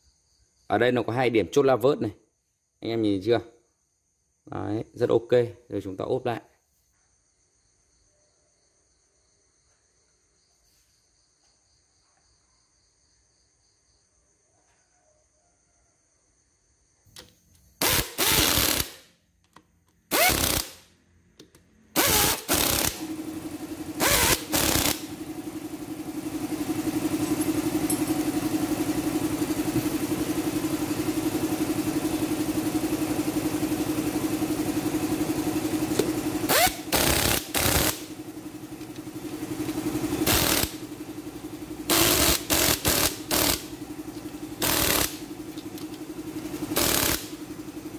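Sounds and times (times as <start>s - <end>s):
faint insect chirring: 0.0s - 22.9s
power screwdriver bursts: 17.8s - 19.0s, 20.1s - 20.8s, 22.0s - 23.1s, 24.0s - 25.1s, 36.5s - 38.1s, 40.2s - 40.8s, 41.9s - 43.7s, 44.6s - 45.2s, 46.7s - 47.3s
steady machine hum: 21.9s - 47.9s.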